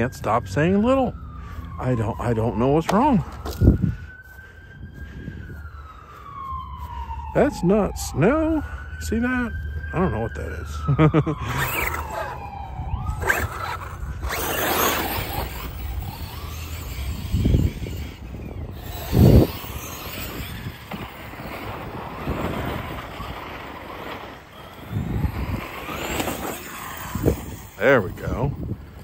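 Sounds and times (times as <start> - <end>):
rc truck motor and tyre noise: 0.0 - 6.3, 7.4 - 29.0.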